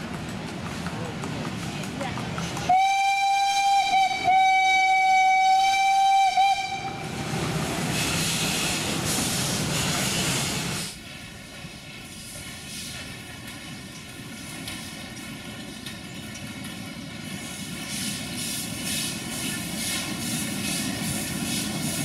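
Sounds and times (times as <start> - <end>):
steam locomotive whistle: 2.7 - 7.2
steam hissing: 5.4 - 22.0.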